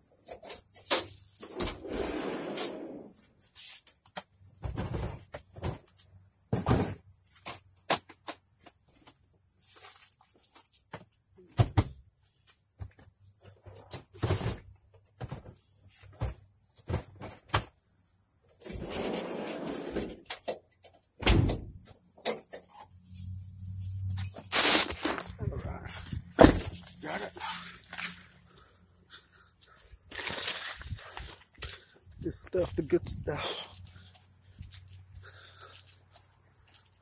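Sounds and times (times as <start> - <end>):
insects chirring: 0.0 - 37.0
knocks and rustling near microphone: 25.2 - 27.0.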